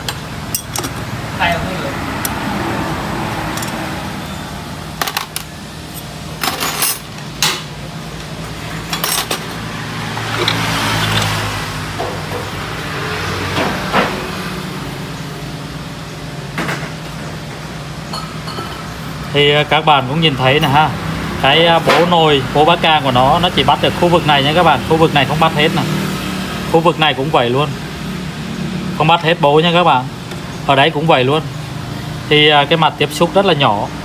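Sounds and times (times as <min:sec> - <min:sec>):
metal parts clinking: 0:06.4 - 0:07.2.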